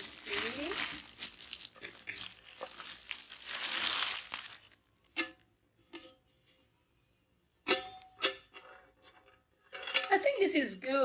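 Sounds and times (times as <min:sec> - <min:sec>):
plastic bag crinkling: 0:00.0 - 0:05.1.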